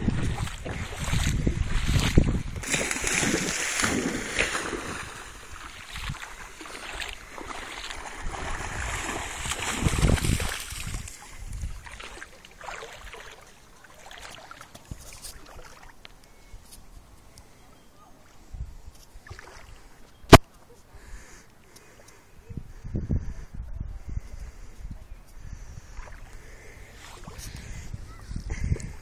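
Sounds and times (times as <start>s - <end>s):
dog splashing through water: 0.2s - 14.7s.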